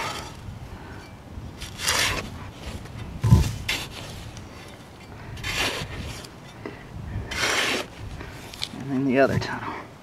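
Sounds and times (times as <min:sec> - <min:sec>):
spade scraping through dirt: 0:00.0 - 0:00.5, 0:01.6 - 0:08.7.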